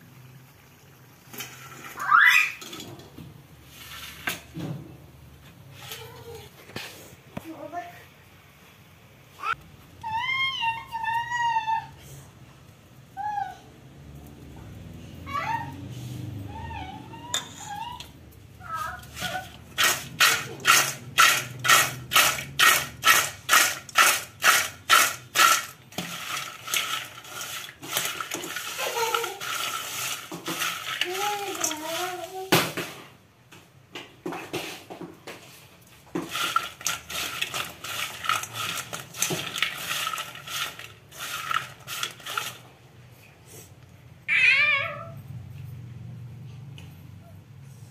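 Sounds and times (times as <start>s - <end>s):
snacks rattling in steel bowl: 19.0s - 32.5s, 36.1s - 42.7s.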